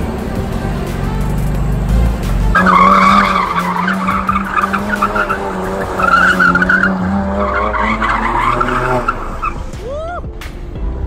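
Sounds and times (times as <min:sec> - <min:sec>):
car engine at steady revs: 0:00.0 - 0:09.7
tyres squealing: 0:02.5 - 0:10.2.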